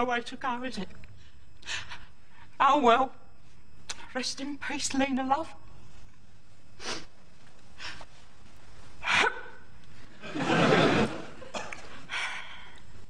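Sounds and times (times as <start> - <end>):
woman sniffing and sighing: 6.8 - 7.1.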